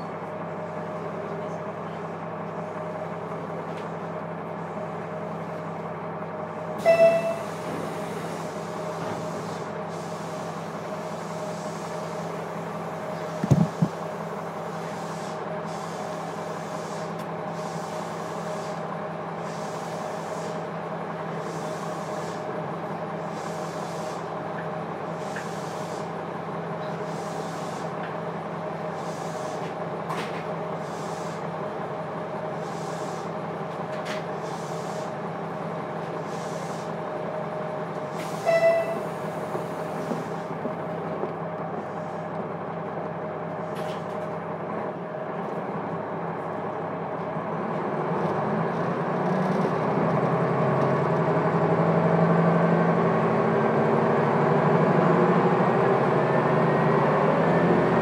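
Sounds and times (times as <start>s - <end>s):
railcar diesel engine running: 0.0s - 58.0s
short loud tone: 6.8s - 7.5s, 38.4s - 39.2s
heavy low thump: 13.4s - 14.0s.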